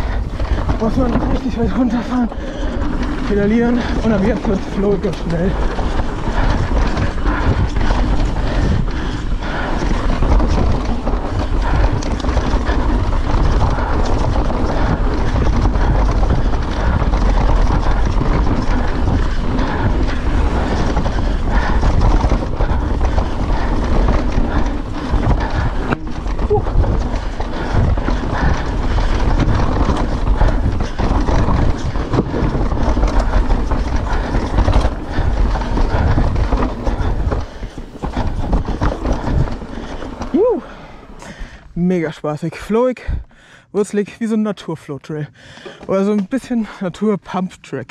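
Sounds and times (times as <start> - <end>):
wind on microphone: 0.0 - 41.5
tyres rolling over dirt: 0.0 - 42.8
bike rattling: 0.0 - 47.9.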